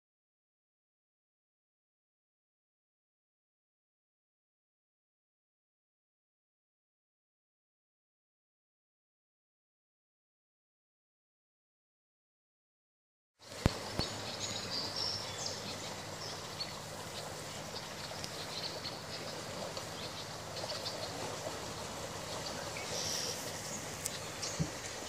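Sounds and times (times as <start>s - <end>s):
river water rushing over gravel: 13.4s - 25.0s.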